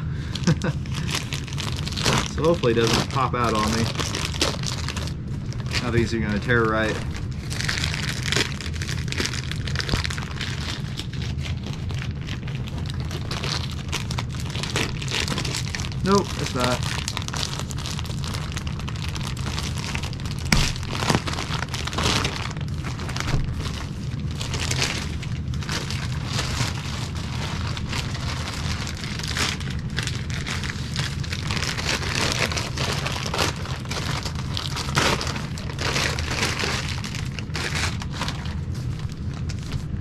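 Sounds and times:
plastic packaging crinkling: 0.0 - 40.0
steady low hum: 0.0 - 40.0
sharp plastic crack: 19.3 - 23.8.

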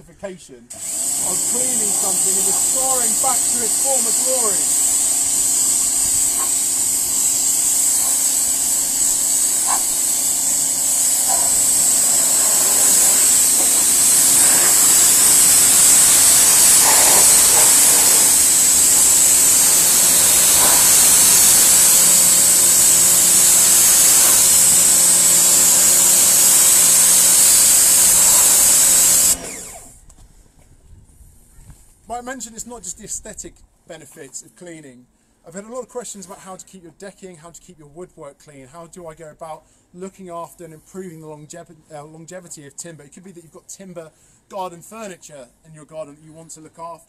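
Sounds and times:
pressure washer spraying: 0.7 - 29.9.

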